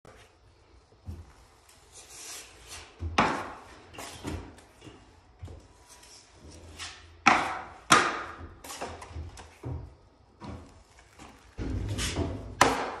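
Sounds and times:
taping knife scraping compound: 1.7 - 4.3.

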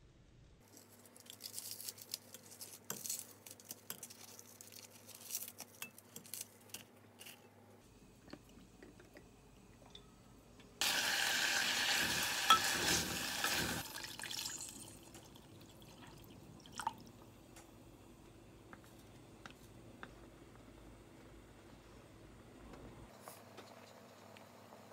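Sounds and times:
meat sizzling in a pot: 10.8 - 15.0.

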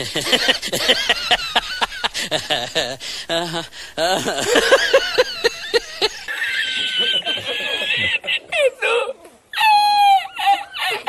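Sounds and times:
man laughing hard: 0.0 - 8.5.

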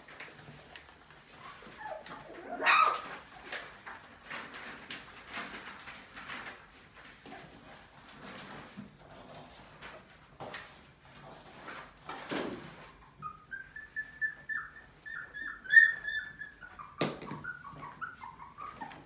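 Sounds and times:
puppy whimpering: 1.3 - 3.2, 12.7 - 19.0.

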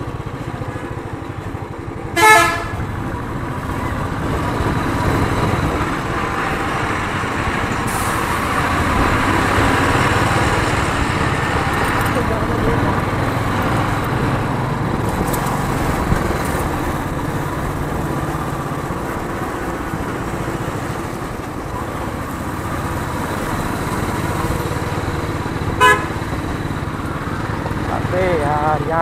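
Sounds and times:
motorcycle engine running: 0.0 - 7.8, 8.4 - 29.0
motorcycle horn toot: 2.1 - 2.9, 25.8 - 26.2.

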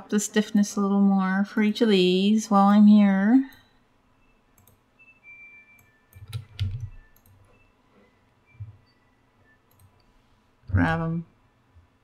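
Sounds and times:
computer mouse clicks: 4.6 - 4.8, 5.8 - 7.5, 9.7 - 10.1.

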